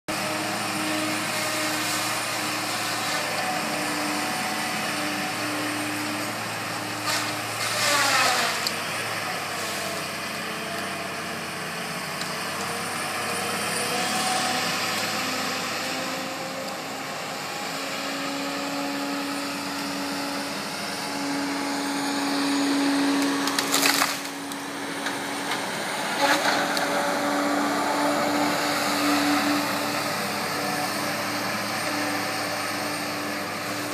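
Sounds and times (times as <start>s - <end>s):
diesel engine and hydraulic whine: 0.1s - 33.9s
wood cracking and splintering: 7.0s - 8.8s, 22.8s - 27.0s.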